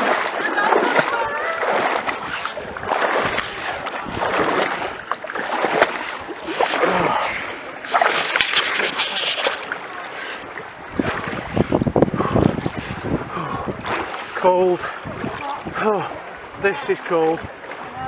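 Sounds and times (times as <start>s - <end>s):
pond water sloshing and splashing: 0.0s - 18.0s.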